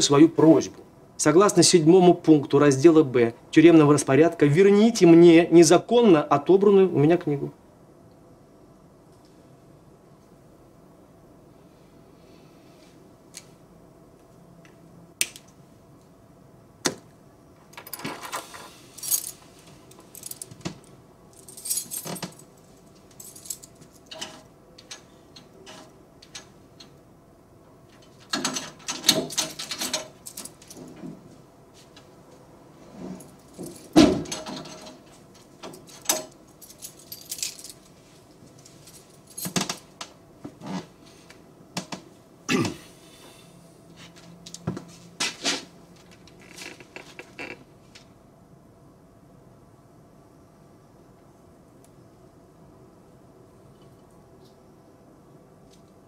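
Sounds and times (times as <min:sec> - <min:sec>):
keys jangling: 0:17.8 - 0:20.6, 0:21.3 - 0:24.4, 0:28.5 - 0:31.0, 0:33.2 - 0:38.0.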